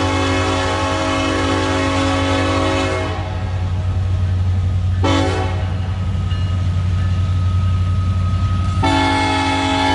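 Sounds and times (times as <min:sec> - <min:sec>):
train horn blast: 0:00.0 - 0:03.6, 0:05.0 - 0:05.8, 0:08.8 - 0:09.9
diesel locomotive engine rumble: 0:00.0 - 0:09.9.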